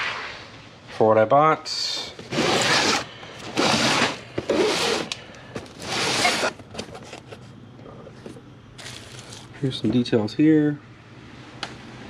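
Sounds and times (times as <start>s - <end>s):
cardboard box scraping on table: 2.1s - 6.6s.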